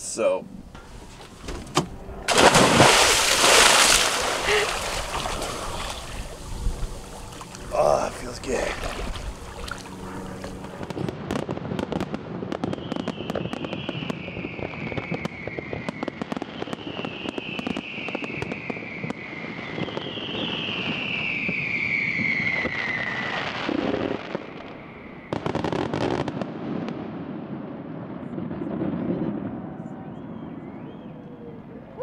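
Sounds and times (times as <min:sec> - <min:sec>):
fireworks crackling and popping: 0:10.5 - 0:27.8
firework whistles falling in pitch: 0:12.6 - 0:23.6.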